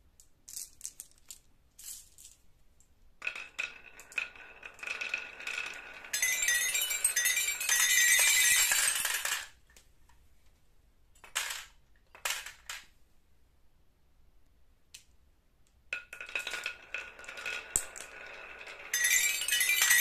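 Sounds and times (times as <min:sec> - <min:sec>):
marbles clattering on toy xylophone: 0:03.2 - 0:09.6, 0:16.0 - 0:20.0
marbles clinking: 0:03.2 - 0:09.6, 0:16.0 - 0:20.0.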